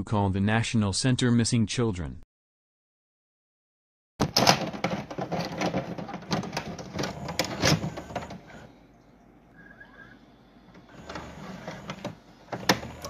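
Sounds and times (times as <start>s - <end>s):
dense clattering clicks: 4.2s - 8.6s.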